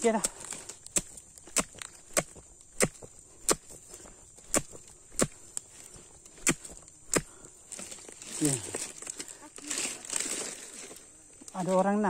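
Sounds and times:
blade chopping stalk: 0.2s - 5.6s, 6.3s - 7.4s.

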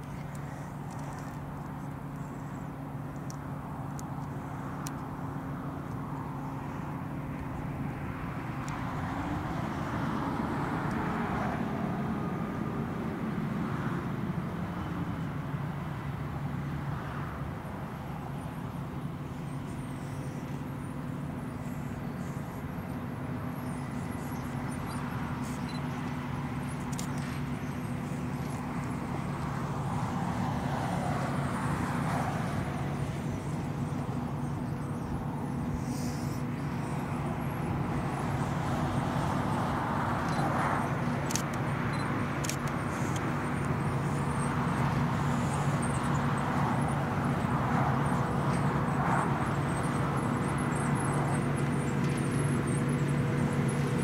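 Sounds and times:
tractor diesel engine drone: 0.0s - 54.0s.

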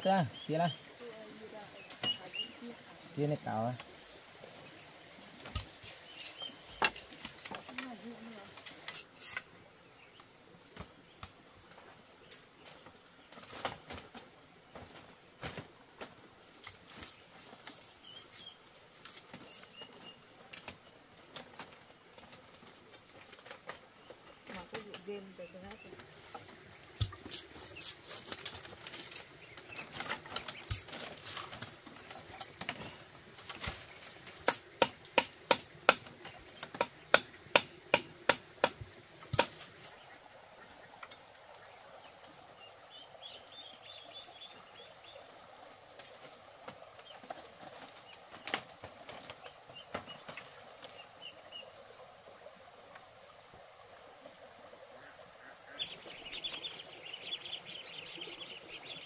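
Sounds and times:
faint bird chirps: 0.2s - 3.2s
tool striking bamboo: 34.3s - 39.7s.

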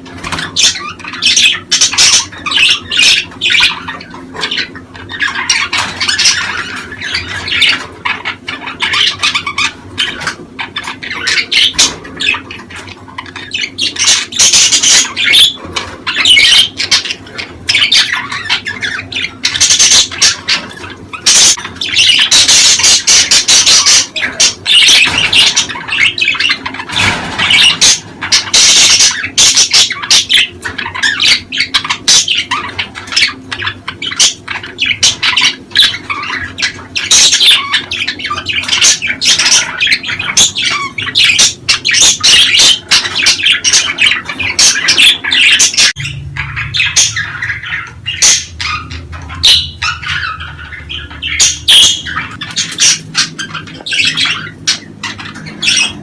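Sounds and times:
budgerigars chattering: 0.0s - 56.0s.

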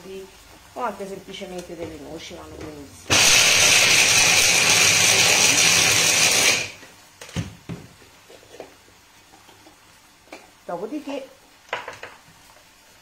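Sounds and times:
electric chopper grinding nuts: 3.1s - 6.8s.

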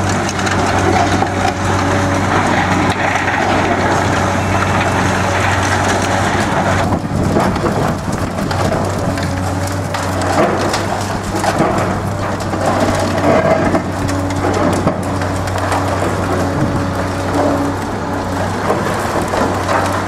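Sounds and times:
debris pattering down: 0.0s - 20.0s
diesel engine humming: 0.0s - 20.0s
shears crushing concrete: 0.0s - 20.0s.

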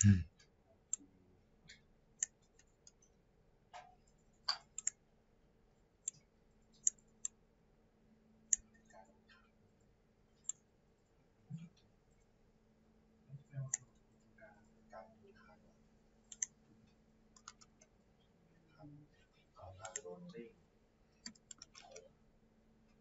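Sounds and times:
faint steady hum: 0.0s - 23.0s
computer mouse clicking: 4.1s - 5.0s, 6.8s - 7.4s, 8.5s - 8.8s, 16.3s - 16.6s, 17.3s - 17.9s, 19.8s - 20.1s, 21.2s - 22.1s.

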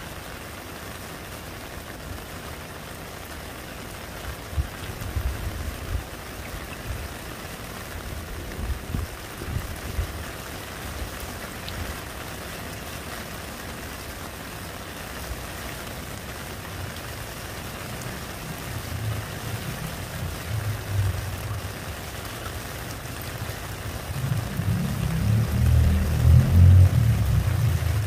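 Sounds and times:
rain falling on a puddle: 0.0s - 28.0s
low rumble: 24.2s - 28.0s.

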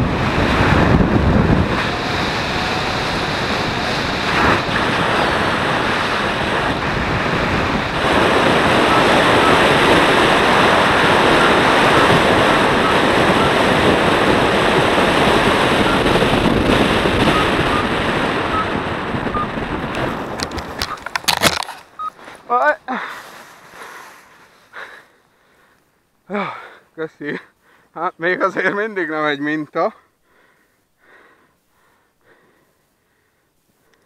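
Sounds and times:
wind buffeting microphone: 0.0s - 22.1s
short high beeps: 22.0s - 22.2s.

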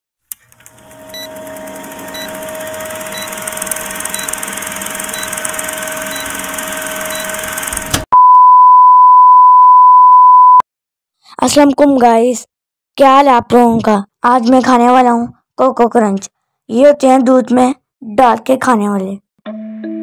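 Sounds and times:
projector whirring: 0.3s - 8.1s
high test-tone beep: 8.2s - 10.6s.

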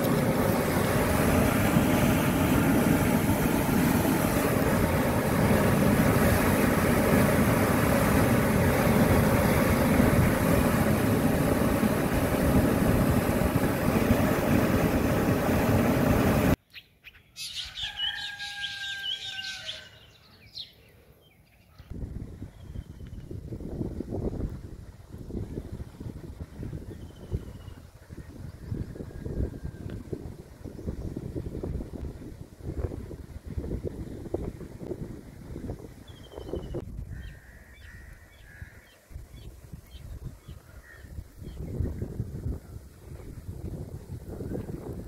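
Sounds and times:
bird calls and chirps: 16.6s - 21.9s, 36.1s - 41.9s.

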